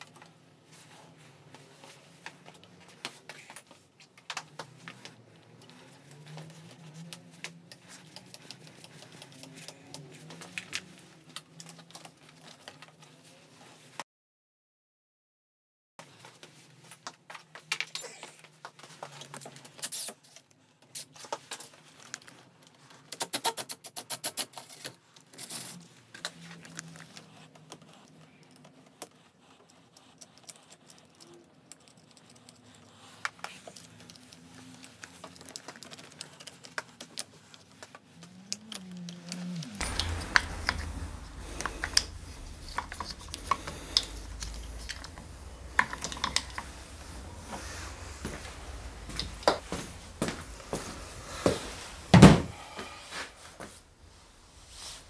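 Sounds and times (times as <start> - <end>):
low background rumble: 39.7 - 55.0.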